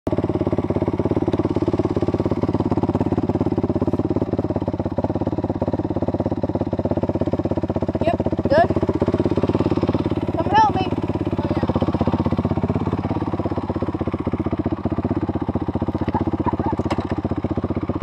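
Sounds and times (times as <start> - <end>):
dirt bike engine idling: 0.1 - 18.0.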